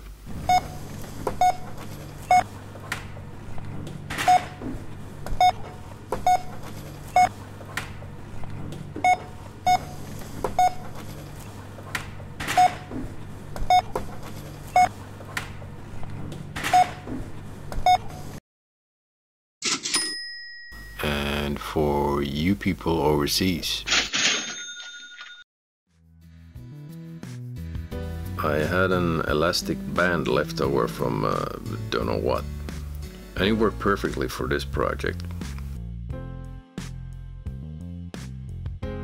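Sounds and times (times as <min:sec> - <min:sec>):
low hum of shop: 0:00.2 - 0:18.4
bar code scanner beeping: 0:01.4 - 0:02.5, 0:04.2 - 0:04.6, 0:05.4 - 0:07.4, 0:09.0 - 0:11.0, 0:12.5 - 0:12.9, 0:13.7 - 0:14.0, 0:17.8 - 0:18.2.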